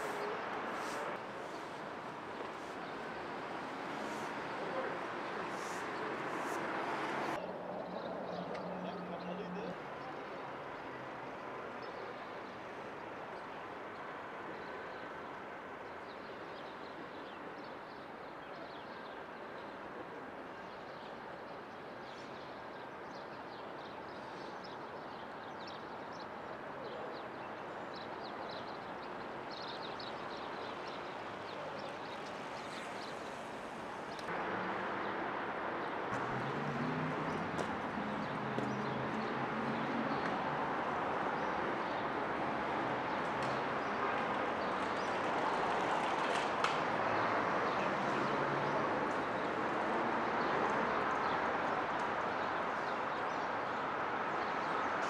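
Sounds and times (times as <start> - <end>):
distant traffic: 0.0 - 25.0, 25.6 - 55.0.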